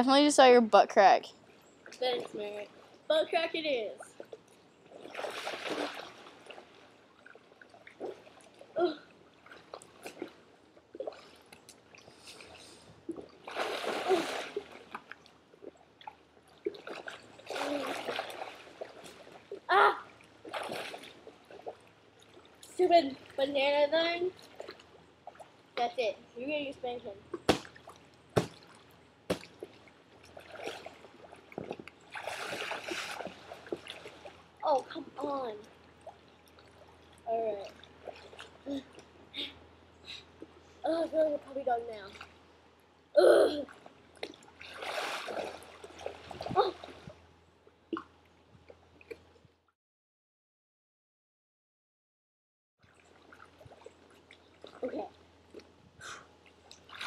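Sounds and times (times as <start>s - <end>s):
pool water splashing: 0.0s - 49.4s, 52.8s - 57.0s
water splash: 5.0s - 8.6s, 13.1s - 15.2s, 16.0s - 19.5s, 20.4s - 21.8s, 27.4s - 34.4s, 44.2s - 47.1s
slaps on wet inflatable: 27.4s - 27.8s, 28.4s - 28.7s, 29.3s - 29.5s.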